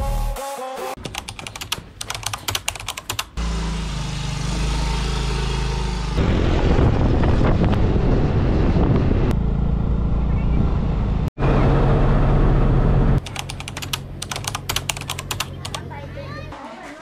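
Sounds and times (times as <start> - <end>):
road vehicle running noise: 3.2 - 17.0
sharp clicks: 13.2 - 15.8.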